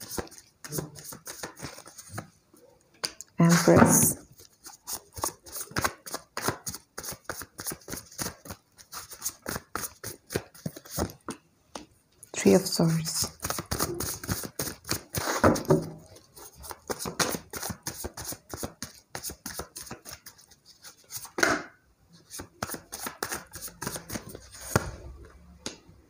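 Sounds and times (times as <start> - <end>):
cards shuffling: 0.0 - 2.3, 3.0 - 11.2, 13.1 - 21.4, 22.2 - 25.0.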